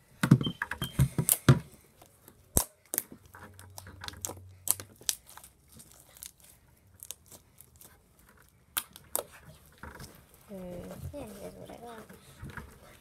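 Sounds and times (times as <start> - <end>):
slime squished by hand: 1.2 - 9.7.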